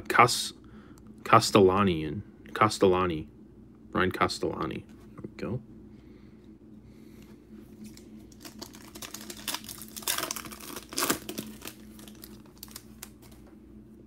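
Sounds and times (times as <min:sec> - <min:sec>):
plastic wrapper crinkling: 0:07.8 - 0:13.5.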